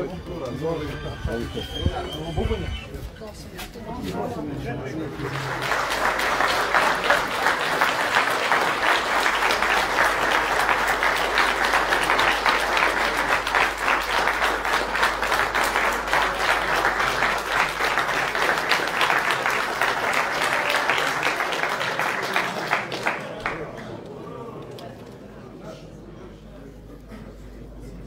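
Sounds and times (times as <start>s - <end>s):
audience applauding: 4.8s - 24.0s.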